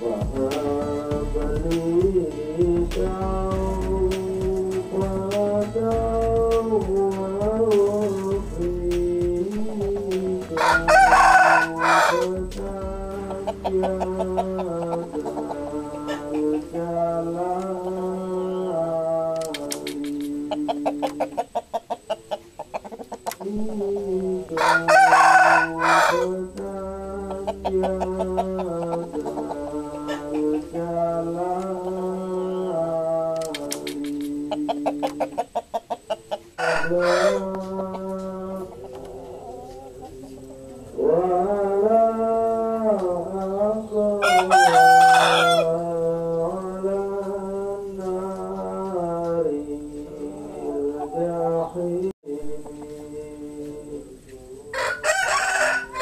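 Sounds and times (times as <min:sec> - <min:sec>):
background music: 0:00.0 - 0:19.9, 0:23.7 - 0:33.9
rooster crowing: 0:09.7 - 0:46.7, 0:54.5 - 0:56.0.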